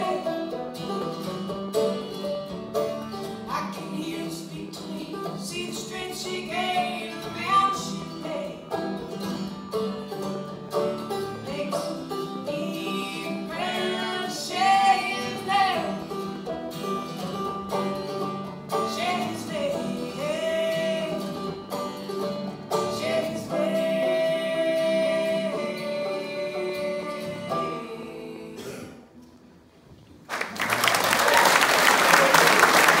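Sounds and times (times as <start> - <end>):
duo singing: 0.0 - 1.2, 3.3 - 29.3
banjo: 0.0 - 29.2
acoustic guitar: 0.0 - 30.3
audience applause: 30.3 - 33.0.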